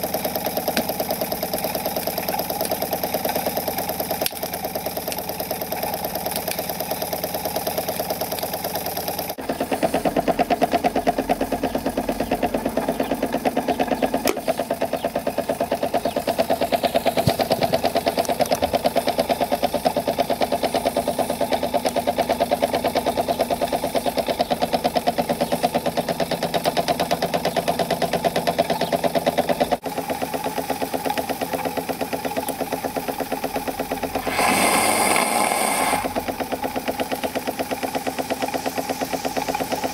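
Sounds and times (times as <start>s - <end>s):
model steam engine exhaust beating: 0.0s - 39.9s
steam hiss: 34.1s - 36.3s.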